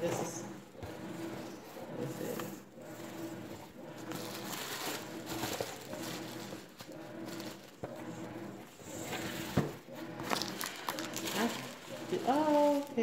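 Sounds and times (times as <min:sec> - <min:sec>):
tissue paper rustling and crinkling: 0:04.1 - 0:07.8, 0:10.3 - 0:13.0.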